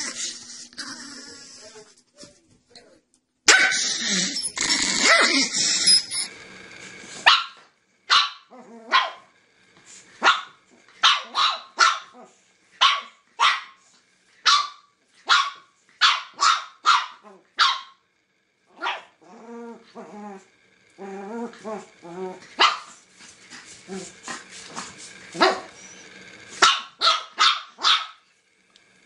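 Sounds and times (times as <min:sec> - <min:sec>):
puppy yapping: 0:26.6 - 0:28.2.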